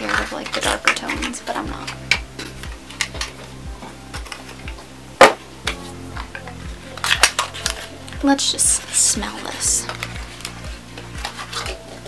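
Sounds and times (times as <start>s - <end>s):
clatter of small items: 0.0s - 3.5s, 5.7s - 10.5s
background music with steady beat: 0.0s - 12.0s.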